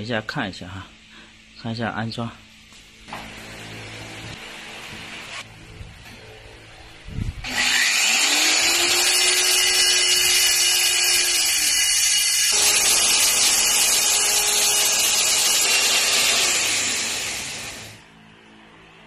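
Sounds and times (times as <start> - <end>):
core drill boring masonry: 7.4 - 18.0.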